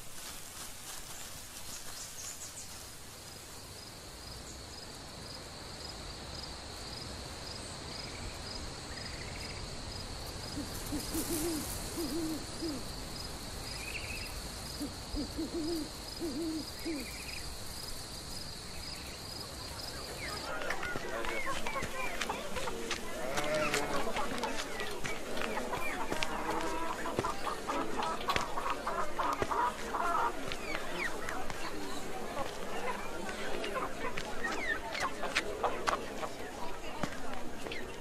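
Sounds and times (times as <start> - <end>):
owl hooting: 10.5 - 12.9, 14.7 - 17.4.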